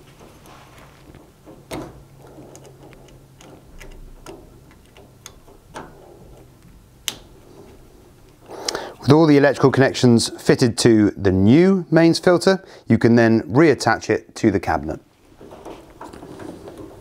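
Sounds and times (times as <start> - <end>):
spade connectors clicking: 1.2 - 7.4.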